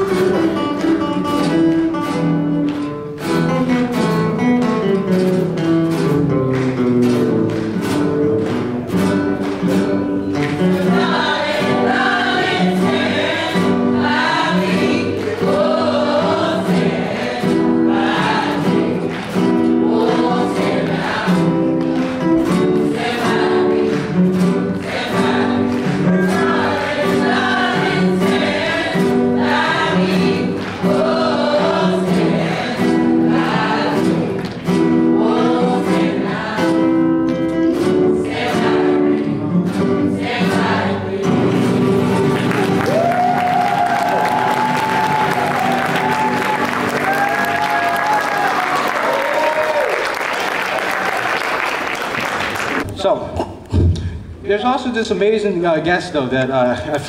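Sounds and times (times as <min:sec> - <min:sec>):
strummed acoustic guitars: 0:00.0 - 0:52.9
choir singing: 0:10.7 - 0:42.7.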